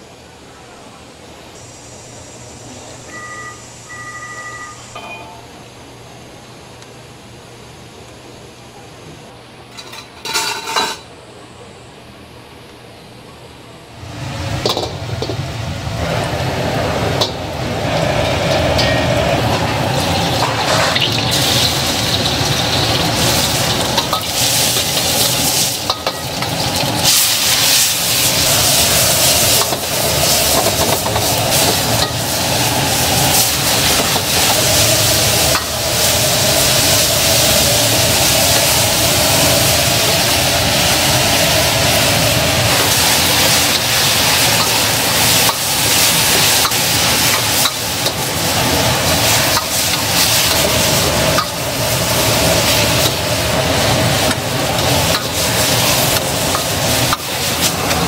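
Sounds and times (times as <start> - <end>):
gas flame rumble: 0.0 - 58.0
food sizzling in wok: 14.0 - 58.0.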